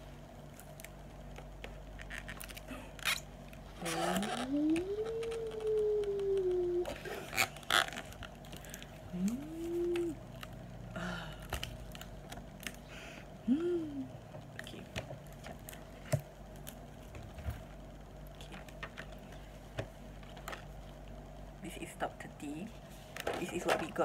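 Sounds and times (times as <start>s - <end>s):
person humming: 3.8s - 7.5s, 9.0s - 11.6s, 13.4s - 14.2s
plastic packages clicking and tapping: 7.5s - 10.6s.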